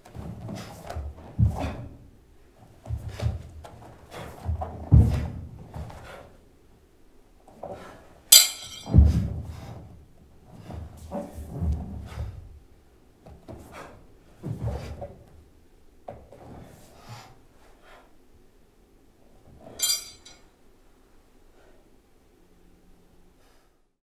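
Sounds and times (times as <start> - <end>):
bare feet stamping on wooden floor: 2.7 - 6.1
ringing metal clink: 8.4 - 8.9, 19.8 - 20.4.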